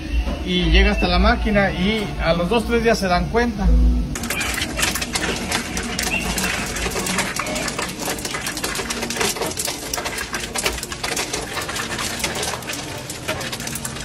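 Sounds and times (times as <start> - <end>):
ice cubes clattering into bin: 4.2 - 14.0.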